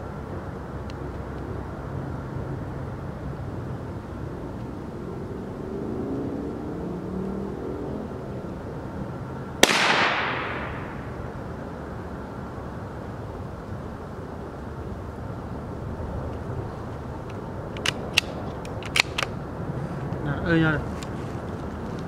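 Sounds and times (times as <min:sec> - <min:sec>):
rifle shot with echo: 0:09.6 - 0:11.2.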